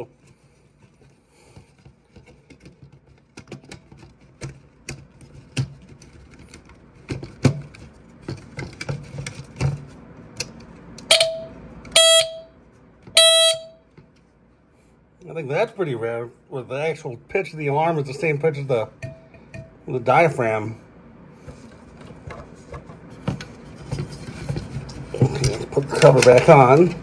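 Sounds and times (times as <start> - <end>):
smoke alarm horn blasts: 11.1 - 12.6, 13.2 - 13.9.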